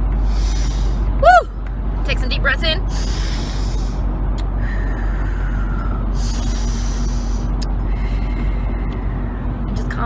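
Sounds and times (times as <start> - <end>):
road and engine rumble in car: 0.0 - 10.0
woman breathing deeply: 2.9 - 9.7.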